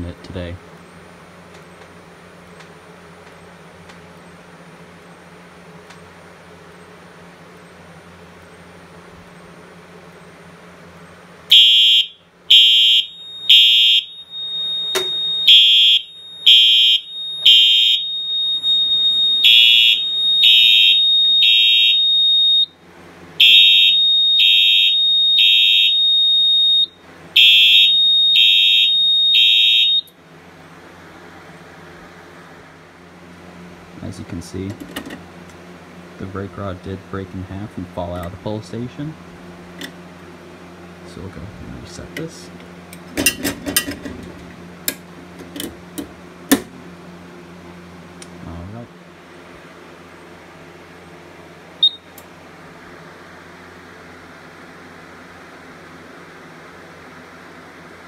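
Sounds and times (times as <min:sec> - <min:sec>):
low hum: 0:00.0 - 0:30.2
fire alarm horn blasts: 0:11.5 - 0:22.8, 0:23.4 - 0:30.2, 0:51.8 - 0:52.1
steady high tone: 0:11.5 - 0:22.8, 0:23.4 - 0:30.1.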